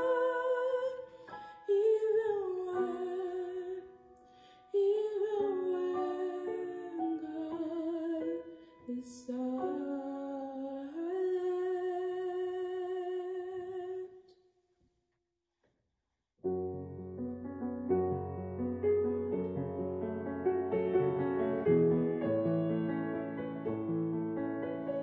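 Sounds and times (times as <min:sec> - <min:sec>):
woman singing: 0:00.0 - 0:04.1, 0:04.7 - 0:14.3
piano: 0:00.0 - 0:14.1, 0:16.4 - 0:25.0.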